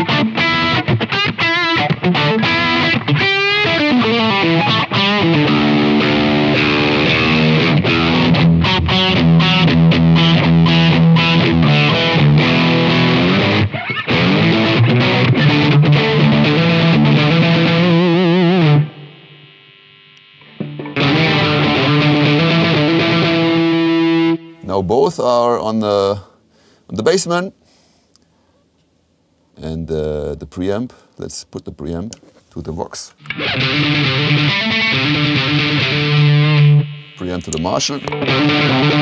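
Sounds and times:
electric guitar chords and notes: 0.0 - 24.7, 33.2 - 39.0.

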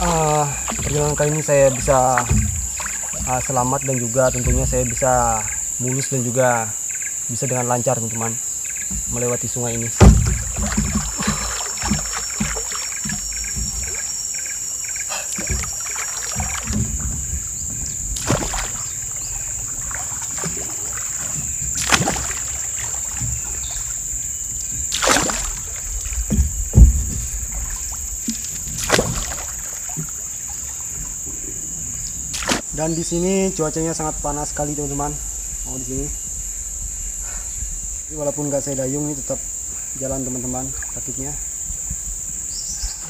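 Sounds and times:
paddle splashing in water: 0.0 - 6.0, 8.6 - 33.0
small splashes and knocks: 0.0 - 6.1, 8.2 - 33.0
high insect buzz: 0.0 - 43.0.

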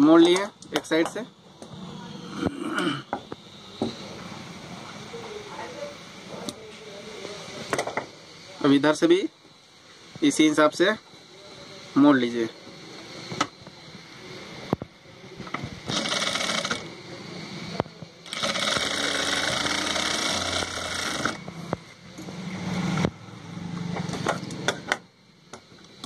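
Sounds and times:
industrial sewing machine stitching: 15.9 - 16.8, 18.3 - 21.4.

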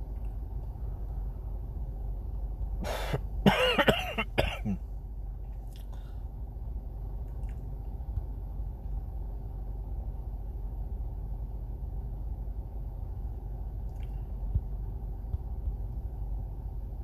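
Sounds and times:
steady low hum: 0.0 - 17.0
man coughing and clearing throat: 2.9 - 4.8.

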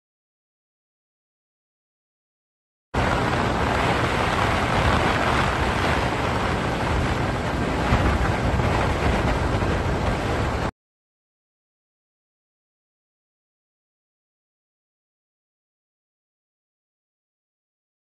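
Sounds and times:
road noise: 3.0 - 10.7
wind rushing over microphone: 3.0 - 10.7.

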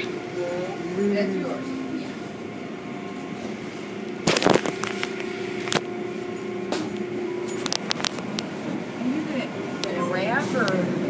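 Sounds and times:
car wash machinery hum: 0.0 - 11.0.

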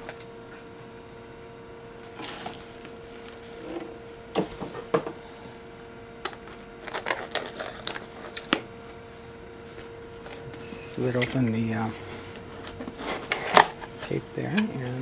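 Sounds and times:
faint steady hum: 0.0 - 15.0
tape scratching and scraping: 6.3 - 8.6, 12.2 - 14.9.

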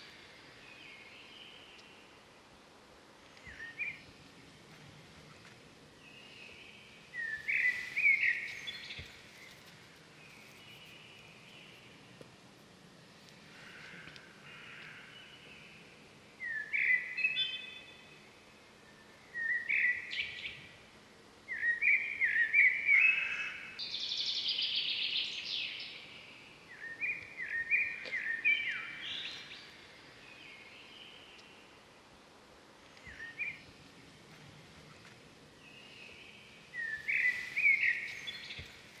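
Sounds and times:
faint background hiss: 0.0 - 39.0
birds chirping: 3.3 - 12.1, 32.8 - 39.0.

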